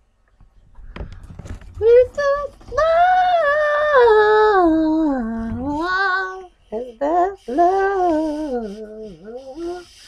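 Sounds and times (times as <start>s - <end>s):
person singing wordless tune: 1.8s - 10.0s.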